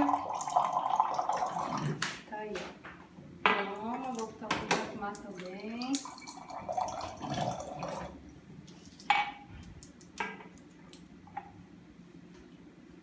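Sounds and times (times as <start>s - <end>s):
water pouring into a glass: 0.0s - 2.0s, 5.7s - 8.2s.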